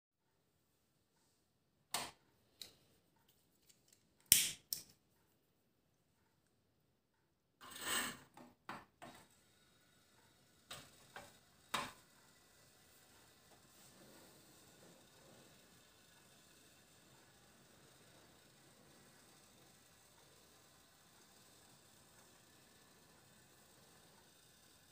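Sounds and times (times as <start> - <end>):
faint steady burner hiss: 9.0 - 24.9.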